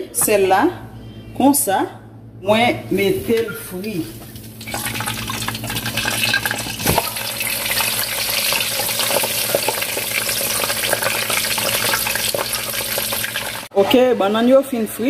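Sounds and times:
food deep-frying in oil: 0:04.2 - 0:13.7.

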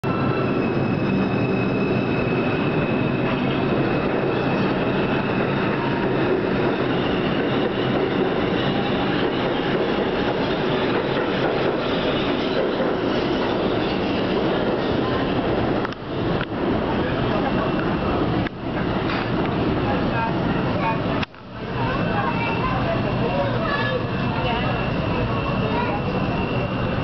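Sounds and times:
high wheel squeal: 0:00.0 - 0:15.8, 0:21.9 - 0:27.0
train wheels rumbling on rail: 0:00.0 - 0:27.0.

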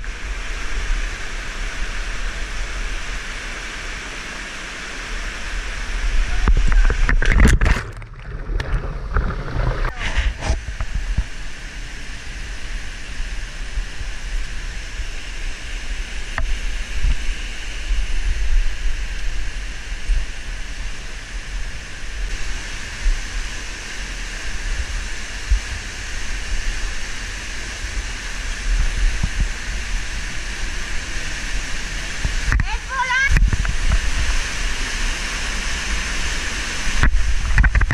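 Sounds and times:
waterfall rushing: 0:00.0 - 0:37.9.

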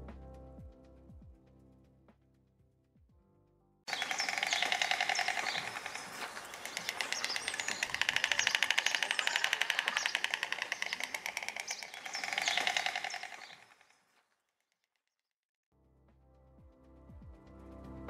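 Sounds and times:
stork bill clattering: 0:03.9 - 0:13.9.

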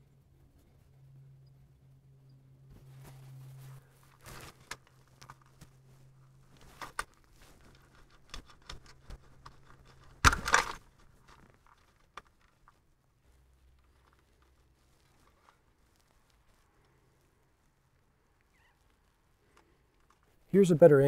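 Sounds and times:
rustling scrape: 0:02.7 - 0:10.2.

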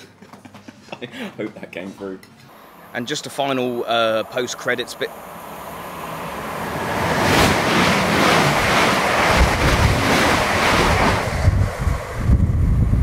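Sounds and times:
train passing at speed: 0:02.5 - 0:13.0
wind buffeting microphone: 0:03.8 - 0:13.0.

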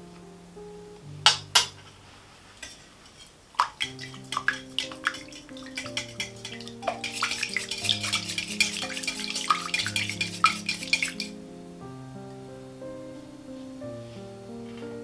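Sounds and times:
soft background music: 0:00.0 - 0:02.6, 0:03.6 - 0:15.0
liquid sloshing: 0:02.6 - 0:11.3
whisk clicking against glass bowl: 0:03.6 - 0:11.3.

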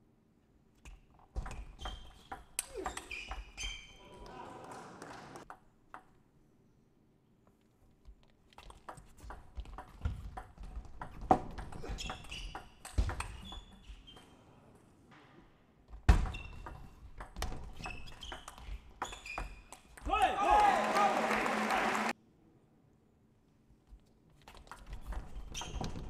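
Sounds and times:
shoe squeaks: 0:01.5 - 0:04.1, 0:11.8 - 0:14.6, 0:16.3 - 0:17.0, 0:17.7 - 0:19.9, 0:25.2 - 0:26.0.

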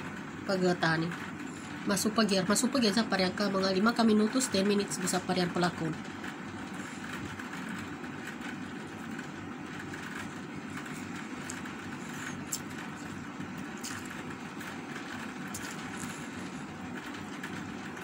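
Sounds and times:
chewing and eating clicks: 0:10.0 - 0:16.6.

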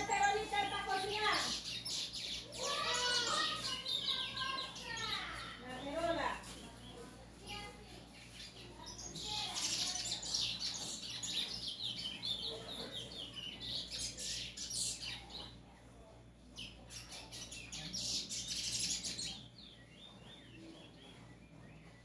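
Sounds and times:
bird chirping: 0:00.0 - 0:15.8, 0:16.4 - 0:22.0.

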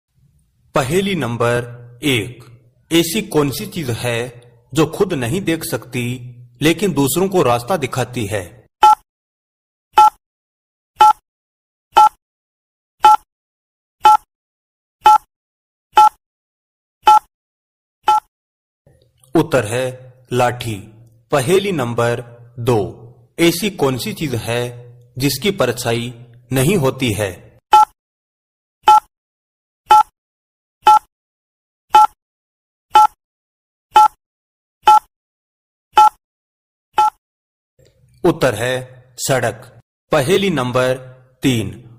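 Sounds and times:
electronic timer ticks: 0:11.0 - 0:11.2, 0:12.0 - 0:12.2, 0:14.0 - 0:14.3, 0:15.0 - 0:15.3, 0:18.1 - 0:18.3, 0:28.9 - 0:29.1, 0:29.9 - 0:30.1, 0:31.9 - 0:32.2, 0:33.0 - 0:33.2, 0:34.0 - 0:34.2, 0:34.9 - 0:35.1, 0:36.0 - 0:36.2, 0:37.0 - 0:37.2.

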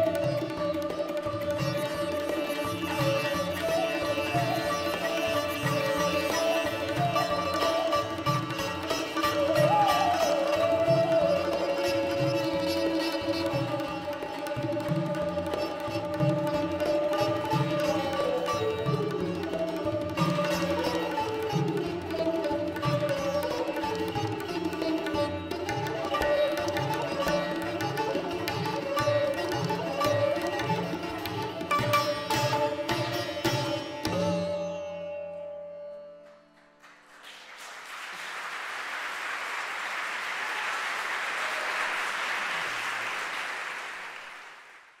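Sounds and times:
tabla drums: 0:00.0 - 0:35.1
sitar: 0:00.0 - 0:36.8
bansuri flute: 0:00.0 - 0:37.5
audience applause: 0:36.8 - 0:45.0.

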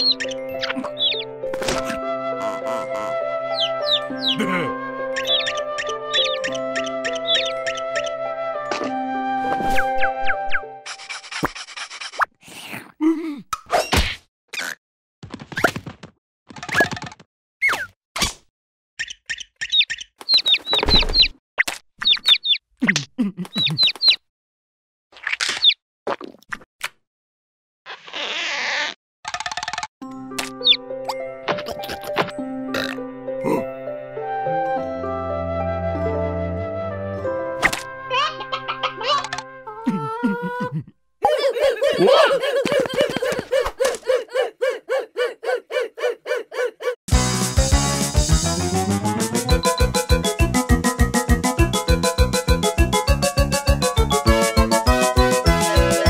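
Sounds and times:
cartoon chick peeping: 0:00.0 - 0:01.3, 0:02.4 - 0:04.4, 0:05.2 - 0:08.1, 0:19.0 - 0:21.3, 0:22.0 - 0:24.2, 0:25.2 - 0:25.8, 0:30.6 - 0:30.8, 0:38.2 - 0:39.4
bright keyboard music: 0:00.0 - 0:10.8, 0:30.0 - 0:39.6, 0:47.2 - 0:56.0
cartoon voice laughing: 0:01.9 - 0:04.8, 0:22.8 - 0:24.1, 0:38.1 - 0:47.0.

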